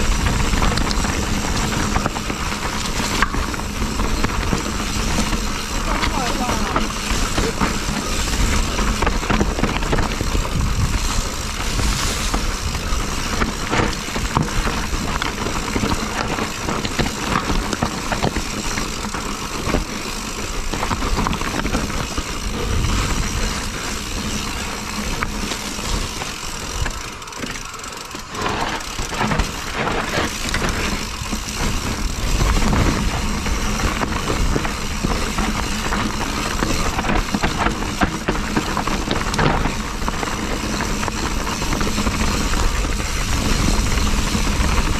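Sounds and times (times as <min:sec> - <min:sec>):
wind rushing over microphone: 0:00.0 - 0:18.3, 0:28.4 - 0:44.9
bike rattling and knocking: 0:00.0 - 0:44.9
bike tyres on dirt: 0:00.0 - 0:44.9.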